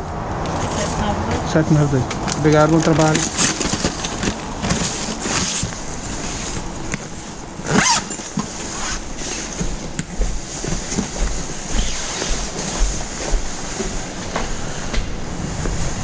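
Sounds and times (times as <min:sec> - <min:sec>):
bag fabric rustling: 0:02.7 - 0:13.2
zipper being pulled: 0:07.6 - 0:09.6.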